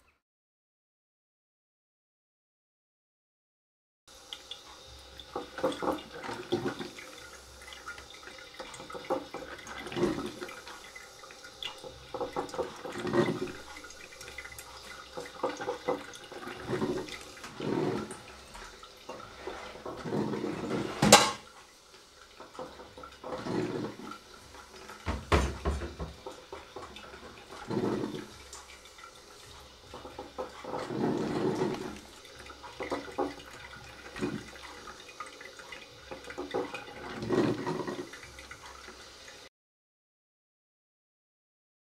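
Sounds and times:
water boiling in kettle: 0:04.1 - 0:39.5.

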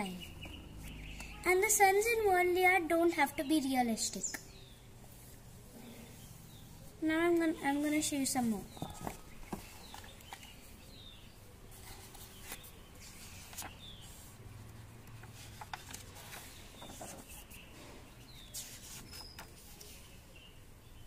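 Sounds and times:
faint bird chirps: 0:00.0 - 0:02.0, 0:03.3 - 0:14.5, 0:15.1 - 0:21.0
sketchbook page turning: 0:07.4 - 0:10.7, 0:11.7 - 0:17.6, 0:18.3 - 0:20.2.

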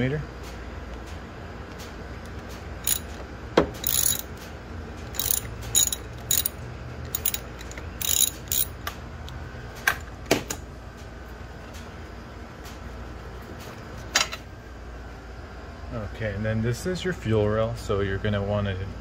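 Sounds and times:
socket ratchet clicking: 0:02.8 - 0:03.2, 0:03.8 - 0:04.4, 0:05.0 - 0:09.4.

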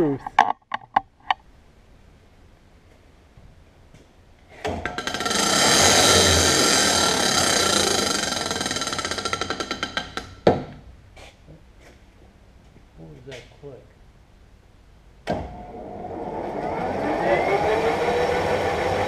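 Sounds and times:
drill press motor whining: 0:05.1 - 0:09.0.

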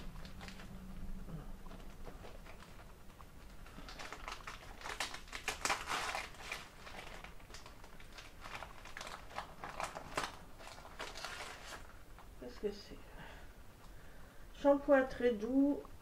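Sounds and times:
wrapping paper crinkling: 0:00.0 - 0:12.4.

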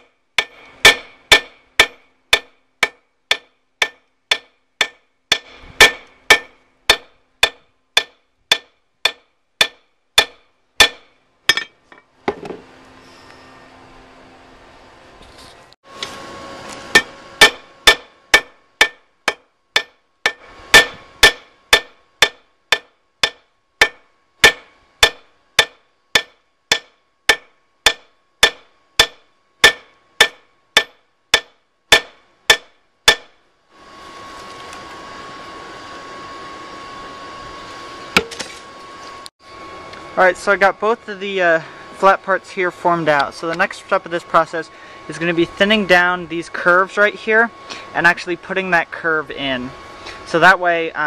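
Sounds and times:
hammer striking metal on anvil: 0:00.0 - 0:12.6, 0:16.9 - 0:33.4.

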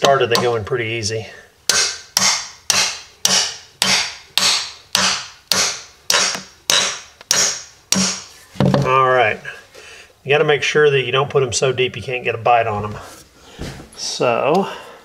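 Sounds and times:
hammer striking steel anchor: 0:01.7 - 0:08.3.

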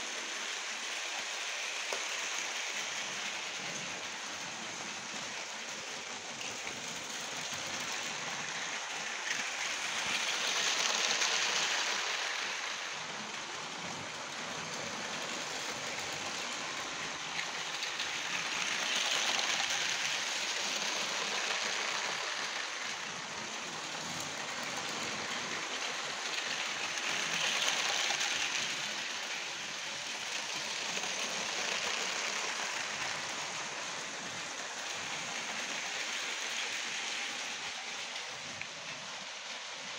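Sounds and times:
toy train wheels rattling on track: 0:00.0 - 0:39.9.

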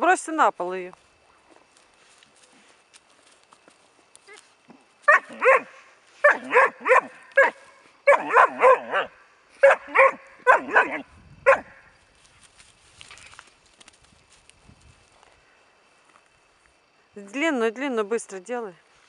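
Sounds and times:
puppy yelping barks: 0:05.1 - 0:11.8.

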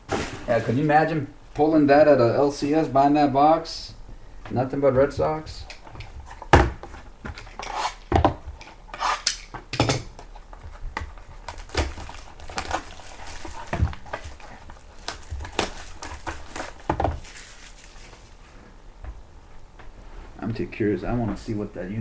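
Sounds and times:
plastic wrap crinkling: 0:10.2 - 0:18.6.

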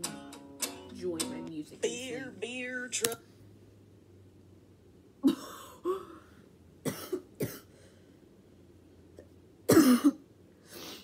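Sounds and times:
woman coughing: 0:05.2 - 0:06.1, 0:06.8 - 0:07.7, 0:09.7 - 0:10.2.

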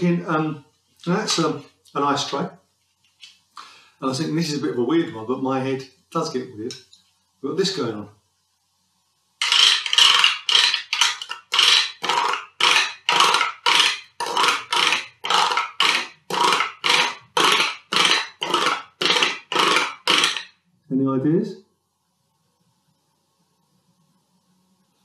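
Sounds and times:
chopstick scraping plastic tray: 0:09.4 - 0:20.5.

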